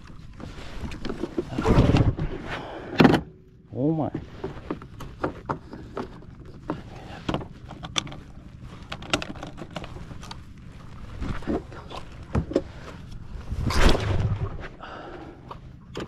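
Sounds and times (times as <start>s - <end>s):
clicks and knocks of controls: 4.4s - 10.5s.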